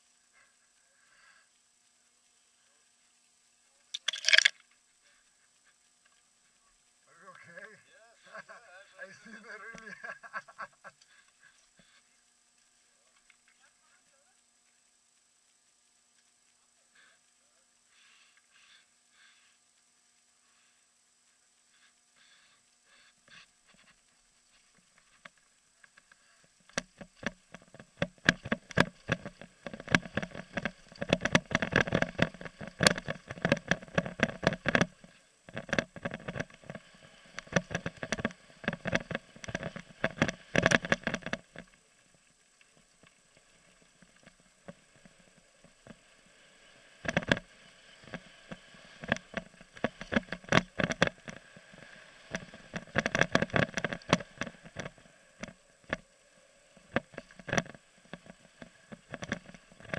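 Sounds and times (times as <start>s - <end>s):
mountain bike clattering on trail: 26.7s - 41.7s, 47.0s - 56.0s.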